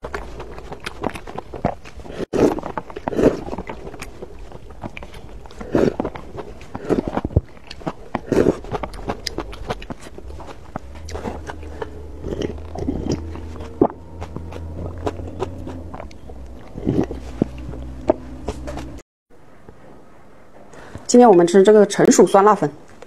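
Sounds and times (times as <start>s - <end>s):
broth sipping and swallowing: 0.0s - 19.0s
noodles slurping: 0.0s - 19.0s
wet mouth clicks and chewing: 0.0s - 19.0s.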